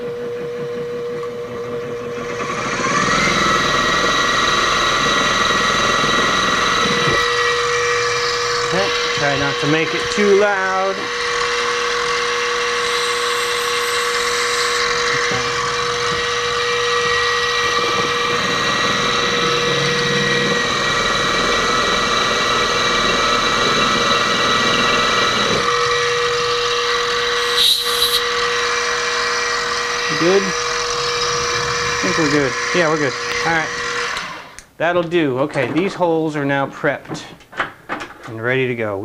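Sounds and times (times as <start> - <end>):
milling machine spindle whine: 0.0 - 34.6
metal cutting noise: 2.3 - 34.1
short scrape: 27.4 - 28.2.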